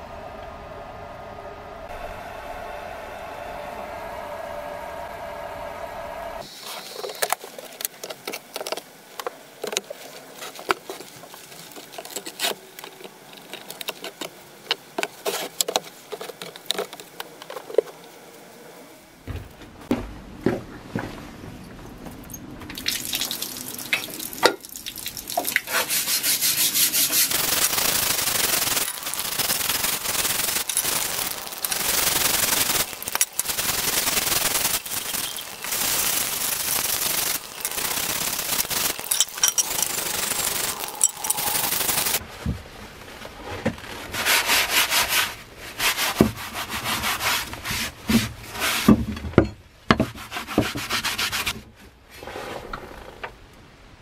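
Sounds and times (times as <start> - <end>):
running hose water: 22.7 - 42.2
paper towel wiping blade: 25.7 - 39.0
blade scrubbed by hand: 25.7 - 42.2.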